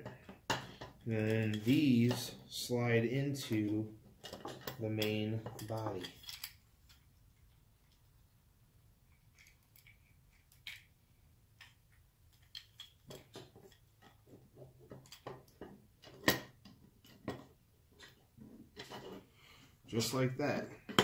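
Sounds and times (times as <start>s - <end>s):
hard plastic parts clicking: 4.2s - 7.0s.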